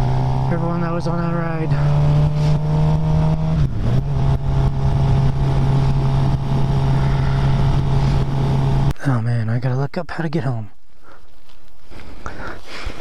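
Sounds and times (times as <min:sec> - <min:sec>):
motorcycle engine cruising: 0:00.0 - 0:08.9.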